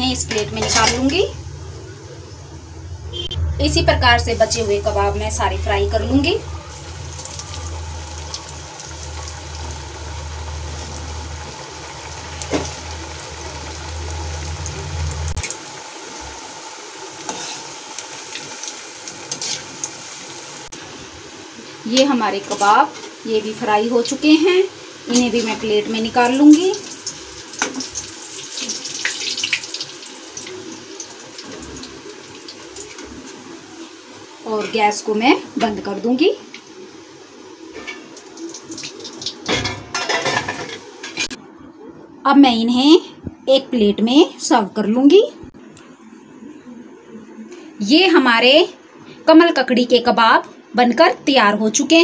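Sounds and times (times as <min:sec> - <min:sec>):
low hum: 0:00.0 - 0:15.6
oil bubbling and sizzling: 0:00.0 - 0:41.6.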